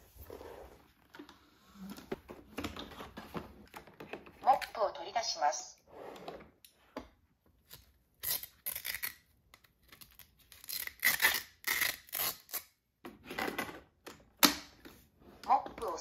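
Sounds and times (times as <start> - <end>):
fabric pad tearing rips: 8.2 - 9.3, 9.9 - 12.8.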